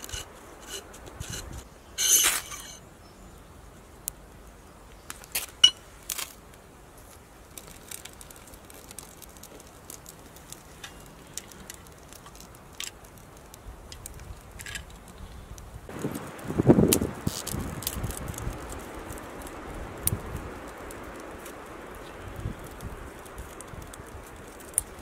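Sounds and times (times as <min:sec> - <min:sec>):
faint tinder crackling: 0:00.0 - 0:02.8, 0:03.4 - 0:25.0
knife scraping a ferro rod: 0:00.0 - 0:02.8.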